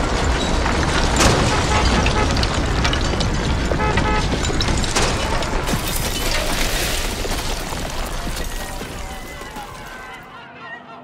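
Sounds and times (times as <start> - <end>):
glass breaking: 0.0 - 10.2
debris crashing and clattering: 0.0 - 10.3.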